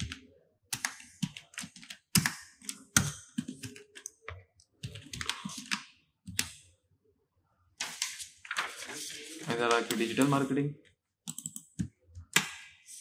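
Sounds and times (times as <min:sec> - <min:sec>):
computer keyboard typing: 0:00.0 - 0:06.6, 0:11.3 - 0:12.5.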